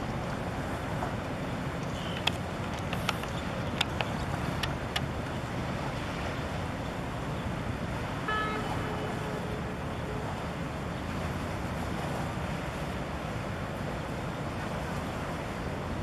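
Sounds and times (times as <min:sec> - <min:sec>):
ship low rumble: 0:00.0 - 0:16.0
water noise: 0:00.0 - 0:16.0
wind: 0:00.0 - 0:16.0
ship horn tone: 0:07.5 - 0:12.6.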